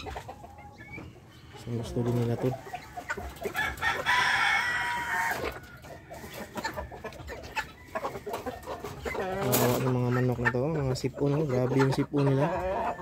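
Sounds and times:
branches rustling against cages: 0.0s - 12.3s
hens clucking: 0.0s - 13.0s
rooster crowing: 3.6s - 6.2s.

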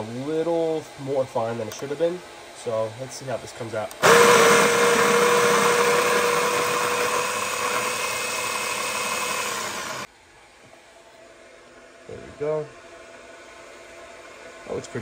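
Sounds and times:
coffee grinder motor whine: 4.0s - 10.1s.

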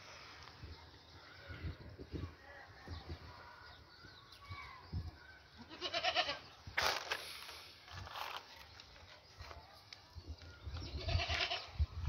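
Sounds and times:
goat bleating: 5.6s - 6.5s, 10.9s - 11.7s.

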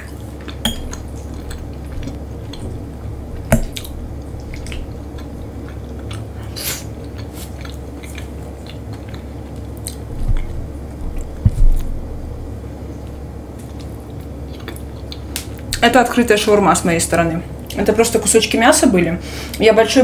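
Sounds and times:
person chewing food: 0.0s - 12.1s, 12.9s - 15.8s
low steady hum: 0.0s - 20.0s.

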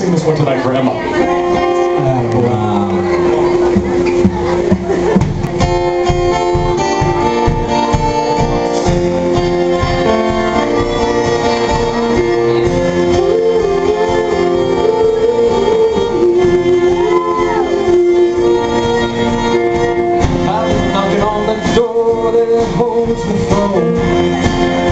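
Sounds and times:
drums: 0.0s - 24.9s
strummed acoustic guitar: 0.0s - 24.9s
bowed violin melody: 5.6s - 24.9s
cello: 5.7s - 22.1s.

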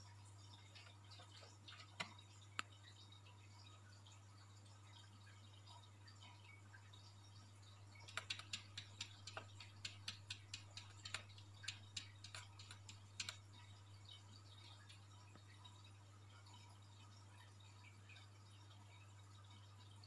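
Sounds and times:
cat claws tapping on glass: 8.0s - 13.5s.

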